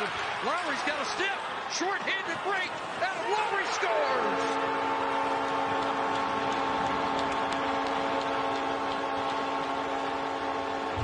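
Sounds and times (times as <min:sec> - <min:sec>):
goal horn chord: 0:04.0 - 0:06.5.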